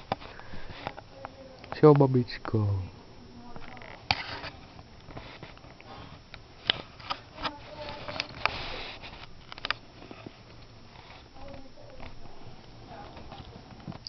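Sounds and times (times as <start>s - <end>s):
rustling: 3.4s - 14.0s
tortoise crunching food: 3.6s - 14.0s.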